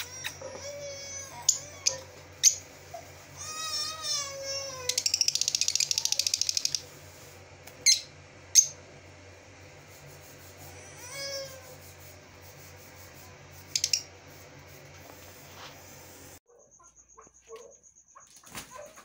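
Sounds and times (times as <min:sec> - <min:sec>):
lovebirds chattering and chirping: 0:01.1 - 0:03.8, 0:04.5 - 0:06.9, 0:13.6 - 0:14.1.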